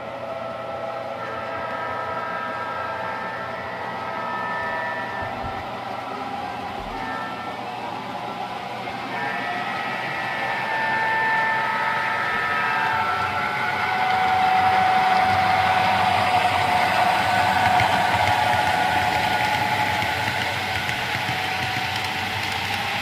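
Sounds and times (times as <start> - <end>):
model train horn chord: 1.2 - 22.9
model freight cars rolling: 8.6 - 23.0.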